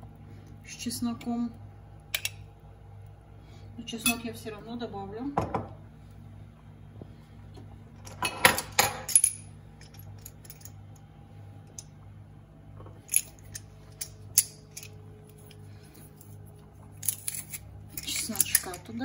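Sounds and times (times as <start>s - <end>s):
faint low hum: 0.0s - 19.0s
metal garlic press clinking: 17.0s - 18.9s.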